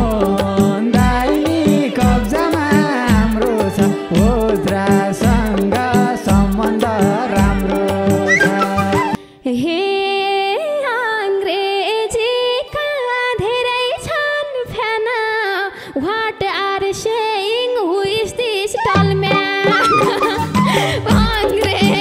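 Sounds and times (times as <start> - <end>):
woman singing folk melody: 6.0 - 22.0.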